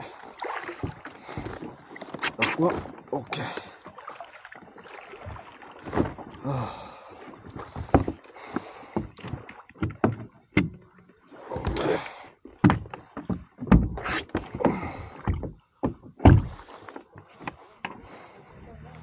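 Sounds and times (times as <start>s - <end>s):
gear knocking on plastic hull: 9.0s - 10.8s, 12.6s - 16.6s
heavy thumps: 13.7s - 16.7s.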